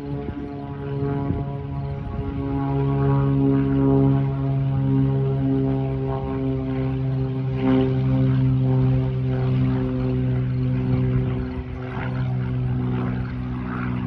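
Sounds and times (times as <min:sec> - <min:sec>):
propeller airplane engine drone: 0:00.0 - 0:14.0.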